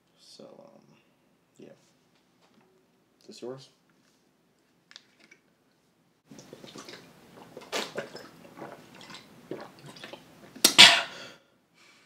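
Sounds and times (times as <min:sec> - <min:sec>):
liquid sloshing: 0:06.3 - 0:10.6
person gulping: 0:06.3 - 0:11.3.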